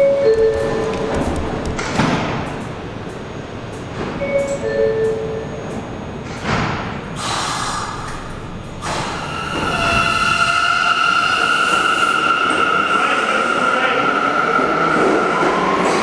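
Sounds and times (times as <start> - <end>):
subway train pulling out: 0.0 - 16.0
high-pitched wheel squeal: 9.1 - 14.4.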